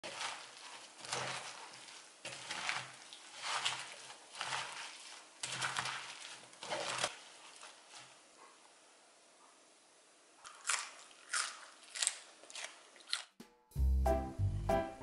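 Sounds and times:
wet leaves squeezed in seasoning: 0.0s - 8.2s, 10.4s - 13.4s.

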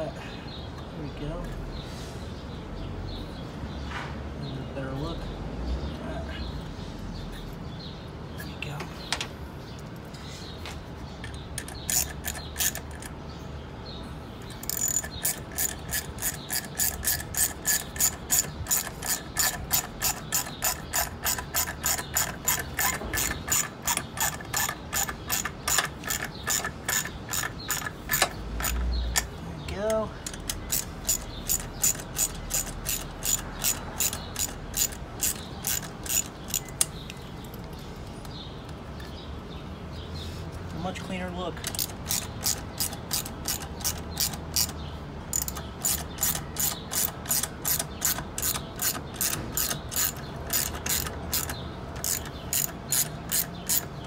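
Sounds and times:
ratchet tool clicking: 11.2s - 13.2s, 14.4s - 29.4s, 30.2s - 37.1s, 41.6s - 54.0s.

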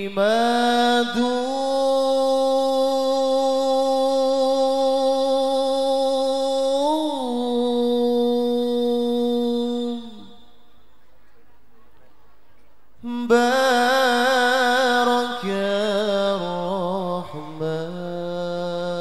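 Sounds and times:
man singing a long note: 0.0s - 10.6s, 13.0s - 19.0s.

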